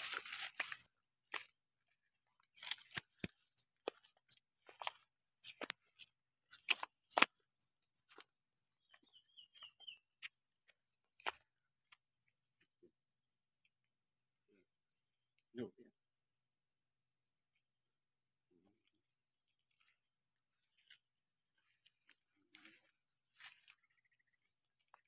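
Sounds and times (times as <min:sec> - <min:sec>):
footsteps crunching on gravel: 0:00.0 - 0:01.5, 0:02.6 - 0:05.8, 0:21.6 - 0:24.0.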